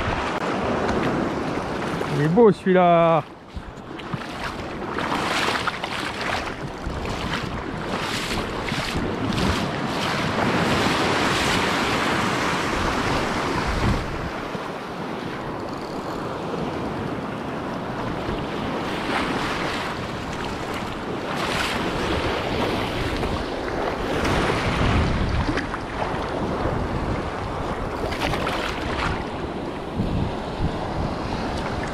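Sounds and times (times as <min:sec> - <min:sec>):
small waves breaking: 0:00.0 - 0:31.9
wind buffeting microphone: 0:00.0 - 0:31.9
short splashes: 0:04.0 - 0:11.6.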